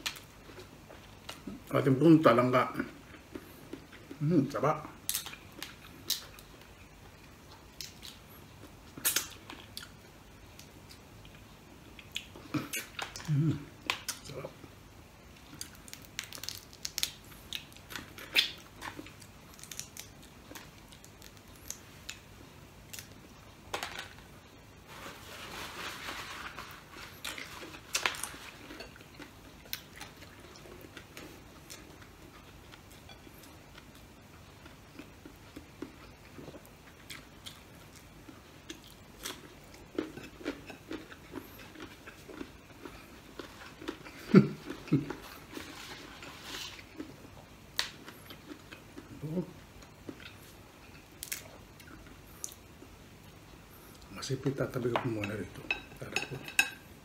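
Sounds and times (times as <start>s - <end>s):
chewing and crunching: 15.3s - 22.3s, 26.1s - 52.9s
crab shells cracking: 15.6s - 21.8s.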